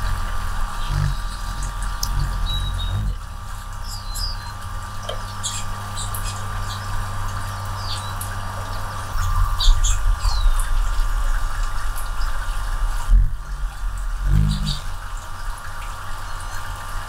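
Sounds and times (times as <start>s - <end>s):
hummingbird chip notes: 0.0s - 10.7s, 13.0s - 15.5s
steady low hum: 0.0s - 17.0s.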